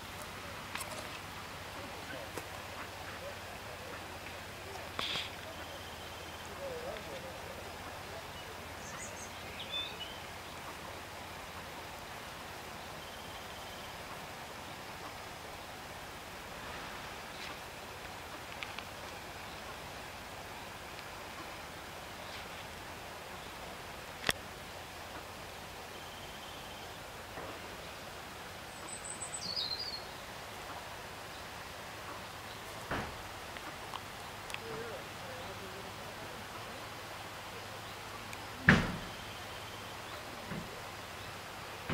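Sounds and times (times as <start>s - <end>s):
outdoor background hiss: 0.0s - 41.9s
faint rapid bird trill: 1.8s - 10.9s, 12.9s - 14.1s, 25.0s - 27.0s, 28.6s - 32.9s, 39.0s - 41.4s
small bird singing: 8.2s - 10.6s, 28.7s - 30.2s.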